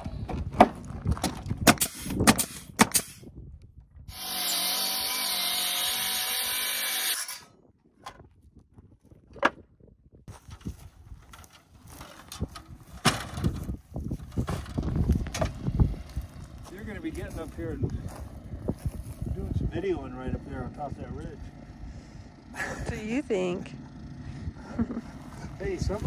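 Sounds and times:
circular saw cutting wood: 0:04.1 - 0:07.5.

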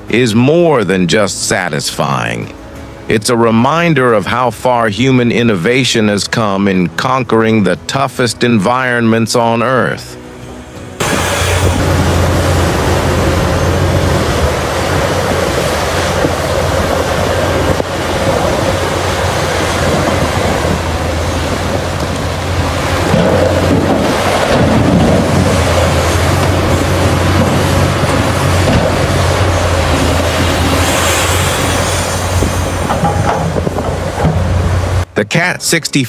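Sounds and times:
excavator diesel engine running: 0:10.2 - 0:35.0.

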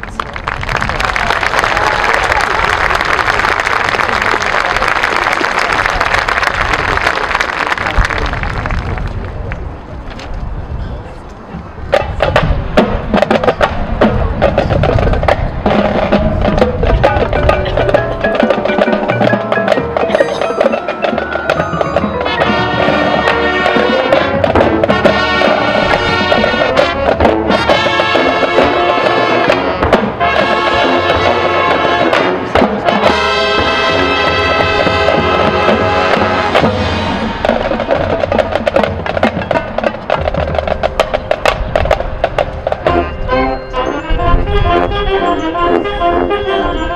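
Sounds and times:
marching band percussion: 0:11.9 - 0:46.6
brass and wind chords: 0:14.6 - 0:46.9.

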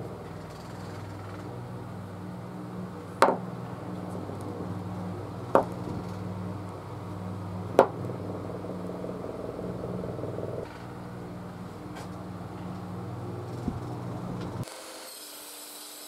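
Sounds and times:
steady low hum: 0:00.0 - 0:14.6
wooden balls knocking on wood: 0:03.2 - 0:03.5, 0:05.5 - 0:06.2, 0:07.7 - 0:10.7.

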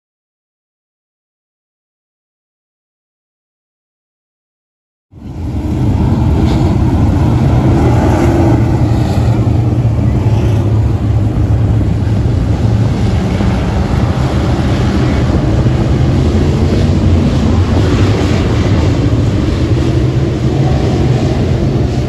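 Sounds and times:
race car engines passing: 0:05.2 - 0:22.0
wind on microphone: 0:05.2 - 0:22.0.

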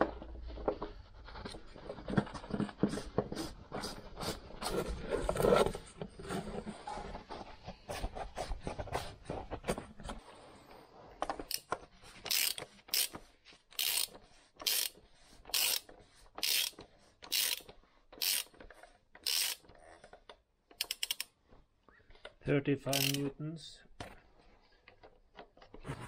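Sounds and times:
hand ratchet clicking: 0:12.3 - 0:18.6, 0:19.2 - 0:19.7, 0:20.8 - 0:21.3, 0:22.9 - 0:23.2.

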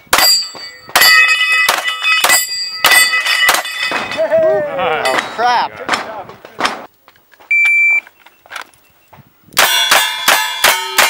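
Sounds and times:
steel plates ringing: 0:00.1 - 0:04.4, 0:09.6 - 0:11.0.

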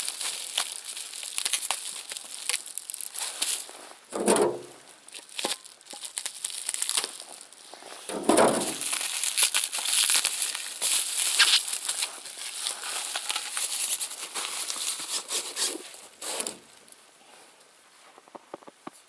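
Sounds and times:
plastic film crinkling: 0:00.0 - 0:16.9
plastic film swishes: 0:07.0 - 0:16.6.

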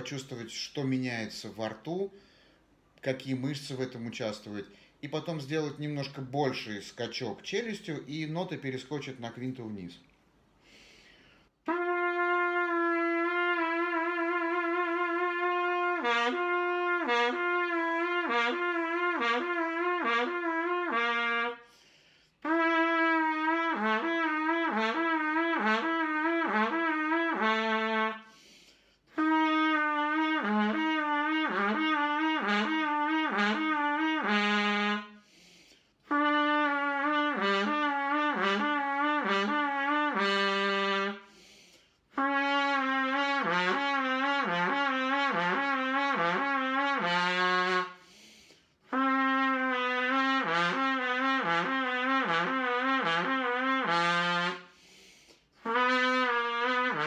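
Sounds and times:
player breathing: 0:02.1 - 0:02.8, 0:10.6 - 0:11.6, 0:21.6 - 0:22.4, 0:28.2 - 0:29.1, 0:35.2 - 0:36.0, 0:41.2 - 0:42.1, 0:47.9 - 0:48.8, 0:54.6 - 0:55.6
trumpet playing slurred notes: 0:11.6 - 0:21.7, 0:22.4 - 0:28.4, 0:29.1 - 0:35.3, 0:36.0 - 0:41.4, 0:42.1 - 0:48.1, 0:48.8 - 0:54.8, 0:55.6 - 0:57.0.

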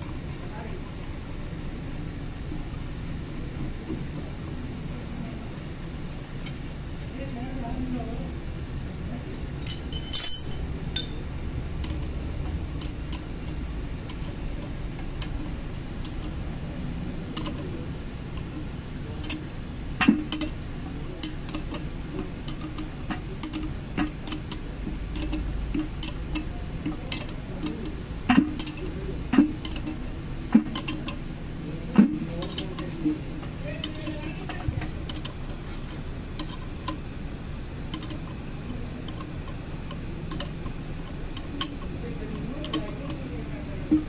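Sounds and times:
wrench clinking on bolts: 0:09.6 - 0:11.2, 0:12.7 - 0:16.4, 0:19.2 - 0:20.6, 0:22.4 - 0:31.2, 0:32.0 - 0:35.4, 0:37.9 - 0:43.3.

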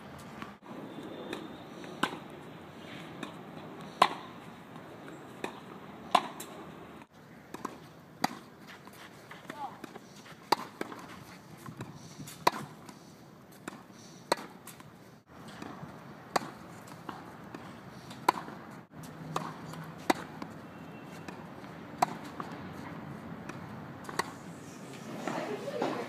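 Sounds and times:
racket hitting tennis ball: 0:01.3 - 0:06.6, 0:07.5 - 0:26.0.

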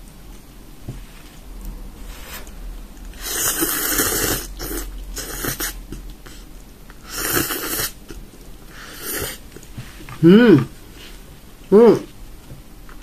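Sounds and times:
noodles being slurped: 0:02.2 - 0:09.6.

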